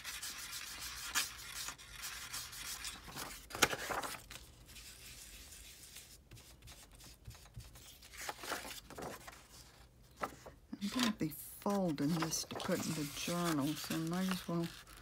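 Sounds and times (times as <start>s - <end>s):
tool rubbing on paper: 0.0s - 2.9s
paper rustling: 0.0s - 15.0s.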